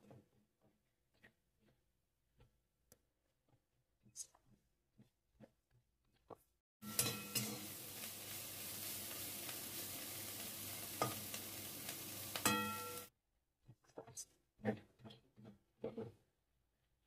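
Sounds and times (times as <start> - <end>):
spatula knocking pan: 6.8 - 7.7, 12.4 - 13.1
pan ringing: 6.8 - 7.8, 12.4 - 13.1
metal spatula stirring: 6.8 - 13.1
prawns sizzling in oil: 6.8 - 13.1.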